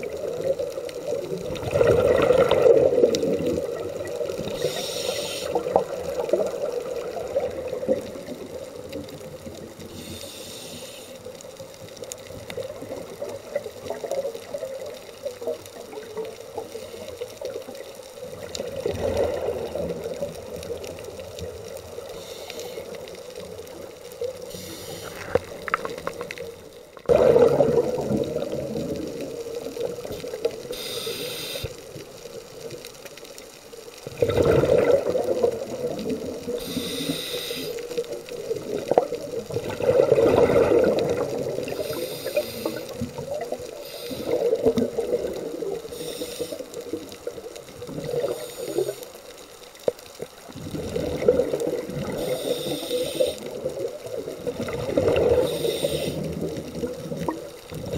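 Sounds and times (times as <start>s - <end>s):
exhale bubbling underwater: 0.0s - 10.5s, 17.4s - 22.3s, 22.9s - 31.7s, 34.0s - 49.0s, 50.4s - 57.9s
watery wash: 0.0s - 57.9s
diver inhaling through regulator hiss: 4.4s - 5.8s, 9.9s - 11.4s, 22.1s - 23.1s, 24.4s - 25.6s, 30.7s - 31.8s, 36.5s - 38.0s, 41.7s - 43.0s, 43.7s - 44.7s, 45.8s - 46.9s, 48.2s - 49.1s, 52.1s - 53.6s, 55.2s - 56.4s.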